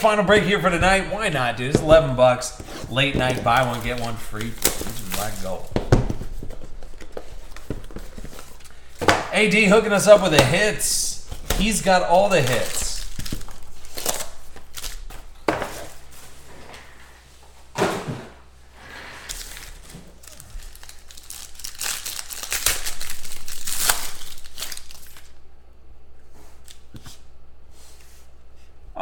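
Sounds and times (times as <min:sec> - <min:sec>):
foil wrapper crinkling and tearing: 0:02.8 - 0:05.7, 0:11.3 - 0:15.4, 0:19.3 - 0:25.4.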